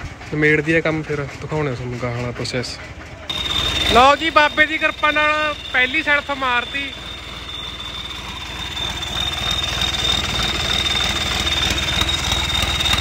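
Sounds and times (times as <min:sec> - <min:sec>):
tractor diesel engine idling: 0:00.0 - 0:13.0
steady high whine: 0:03.3 - 0:13.0.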